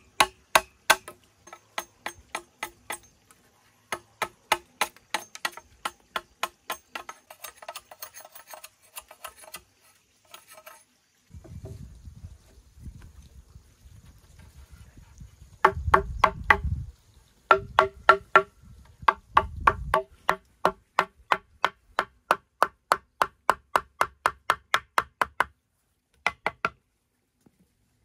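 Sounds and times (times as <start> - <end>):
tool striking bamboo: 0.0 - 3.2, 3.9 - 9.7, 15.6 - 16.7, 17.5 - 25.5, 26.2 - 26.8.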